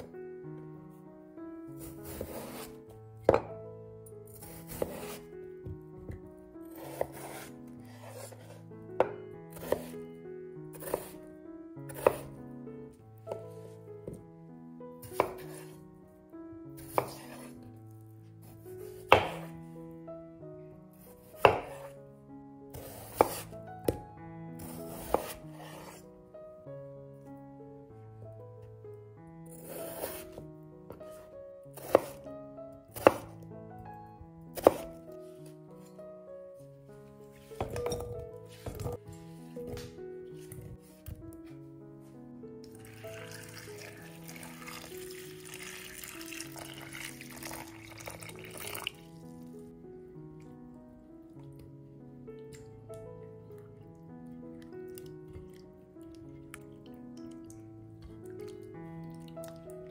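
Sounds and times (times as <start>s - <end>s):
soft background music: 0.0s - 59.9s
knife chopping on wooden board: 1.8s - 2.7s, 4.3s - 5.2s, 6.7s - 8.3s, 9.0s - 10.0s, 10.8s - 11.2s, 11.9s - 12.3s, 15.1s - 15.7s, 16.8s - 17.5s, 19.0s - 19.5s, 21.3s - 21.9s, 22.8s - 24.0s, 24.6s - 25.9s, 29.6s - 30.4s, 31.8s - 32.2s, 32.9s - 33.3s, 34.6s - 35.0s, 37.6s - 41.3s
water pouring into a glass bowl: 42.7s - 49.2s.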